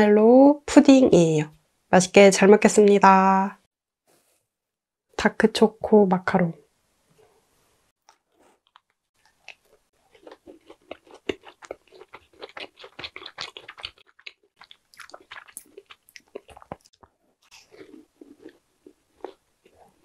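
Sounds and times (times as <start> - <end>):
person chewing crunchy macaron: 8.0 - 20.0.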